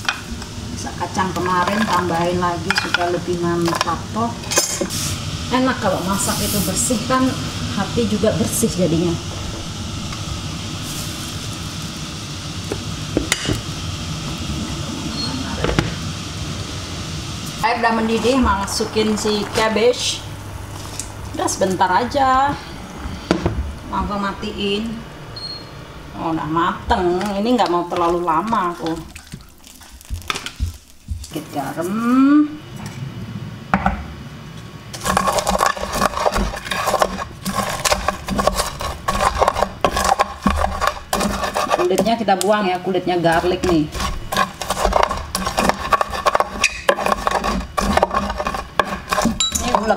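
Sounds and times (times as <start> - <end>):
pestle crushing in a mortar: 28.8 - 31.4, 34.9 - 42.2, 43.3 - 49.9
cookware clinking on glass hob: 49.3 - 49.9.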